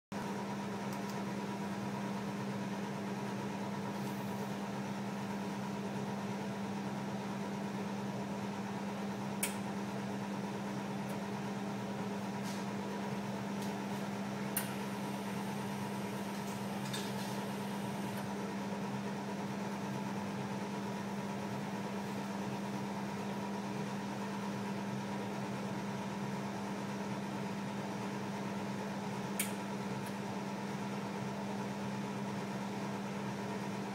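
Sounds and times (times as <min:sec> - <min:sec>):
equipment humming: 0:00.2 - 0:25.9, 0:27.4 - 0:33.9.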